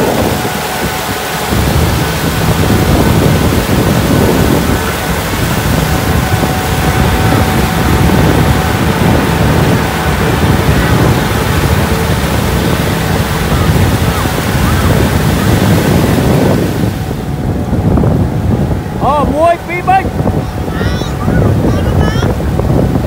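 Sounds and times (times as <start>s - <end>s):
wheels splashing through water: 0.0s - 23.0s
wind noise on microphone: 0.0s - 23.0s.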